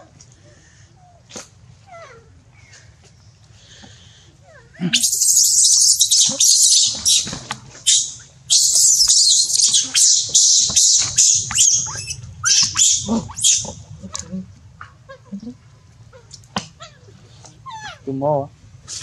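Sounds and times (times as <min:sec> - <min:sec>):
baby monkey screaming: 0:04.8 - 0:14.3, 0:16.2 - 0:18.1.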